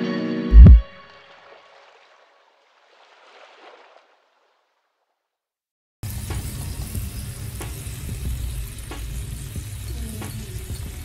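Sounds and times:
bacon sizzling in a frying pan: 0:06.0 - 0:11.0.

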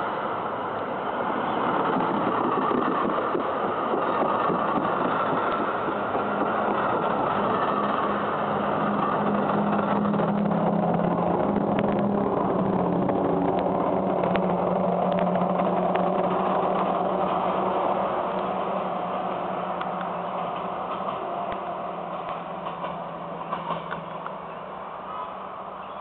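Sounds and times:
wheel and rail noise: 0:00.0 - 0:26.0
locomotive diesel engine drone: 0:06.0 - 0:26.0.

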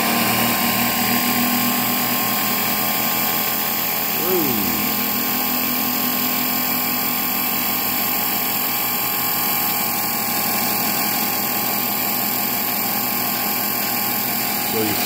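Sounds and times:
electric drive whirring: 0:14.6 - 0:15.0.

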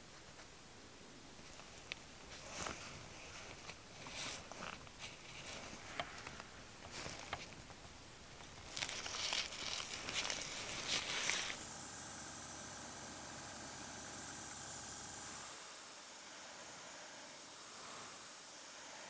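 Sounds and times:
mesh netting rustling: 0:01.4 - 0:11.6
paint spraying hiss: 0:08.0 - 0:19.0.

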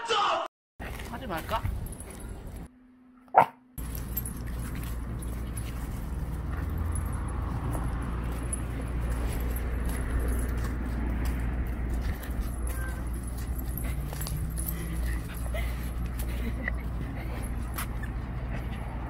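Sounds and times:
low outdoor rumble: 0:00.8 - 0:19.0
small dog barking: 0:03.3 - 0:03.6.

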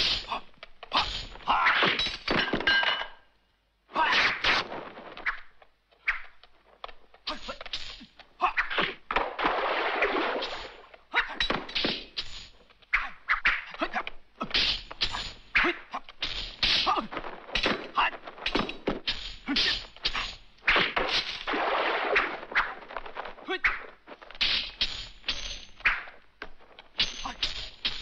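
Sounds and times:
sword swishes: 0:07.3 - 0:26.2.

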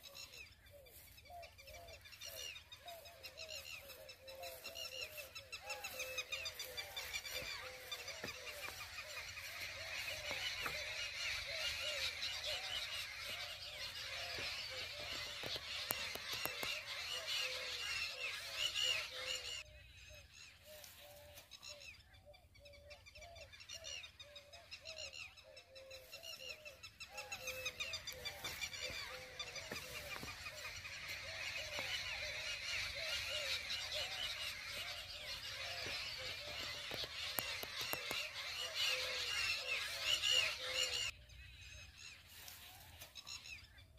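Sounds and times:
birds twittering chorus: 0:00.0 - 0:43.9
low repeated bird call: 0:00.0 - 0:43.9.

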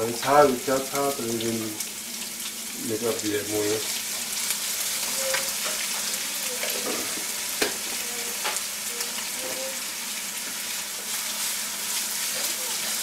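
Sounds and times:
vegetables sizzling in a wok: 0:00.0 - 0:13.0
spatula knocking on pan: 0:05.6 - 0:08.6.

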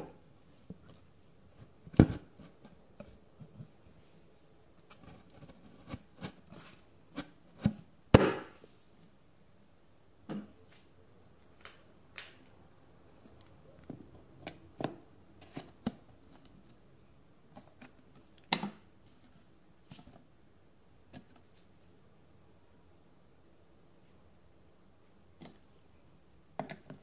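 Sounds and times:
bookcase panels knocking: 0:08.2 - 0:08.5.

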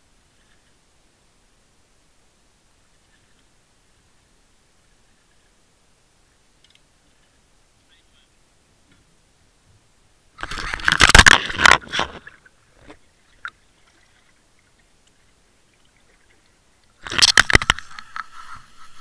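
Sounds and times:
camera scraping plastic bucket: 0:10.4 - 0:13.0, 0:17.0 - 0:19.0.

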